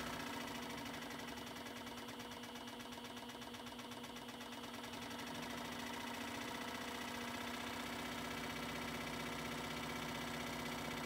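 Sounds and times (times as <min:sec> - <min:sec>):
scroll saw running: 0:00.0 - 0:02.6.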